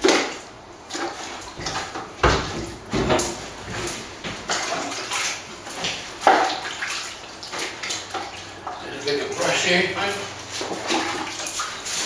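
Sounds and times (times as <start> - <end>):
brush splashing water on brick: 3.8 - 12.0.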